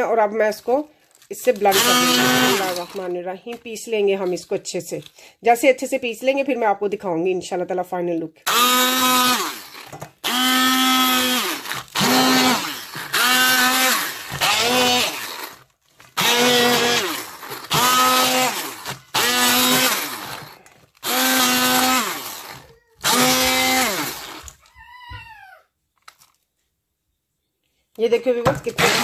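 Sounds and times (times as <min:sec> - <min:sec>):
hand blender motor whine: 0:01.7 - 0:02.9, 0:08.5 - 0:24.7.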